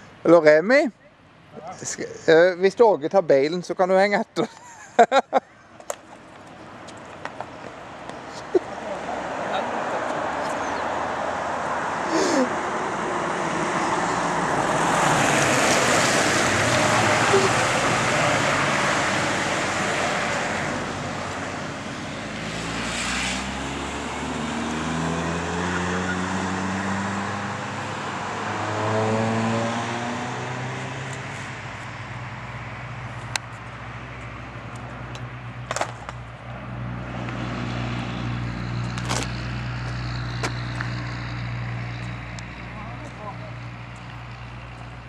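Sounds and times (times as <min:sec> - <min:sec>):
car tyres on asphalt: 0:05.5 - 0:45.0
engine hum rising in pitch: 0:08.7 - 0:35.6, 0:36.4 - 0:45.0.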